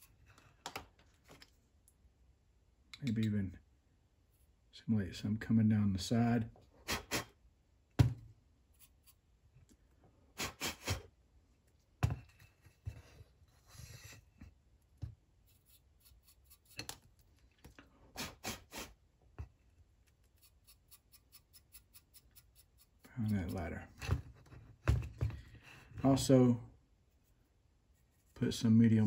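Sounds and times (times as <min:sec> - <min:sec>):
paintbrush scrubbing: 0:08.8 - 0:09.2, 0:15.4 - 0:16.9, 0:20.1 - 0:23.6.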